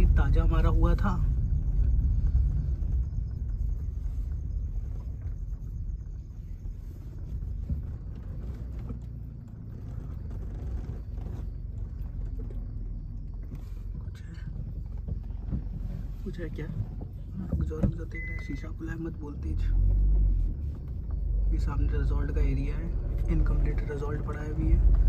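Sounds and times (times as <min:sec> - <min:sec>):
car engine and tyre rumble: 0:00.0 - 0:25.0
car body knocks and rattles: 0:07.2 - 0:18.1.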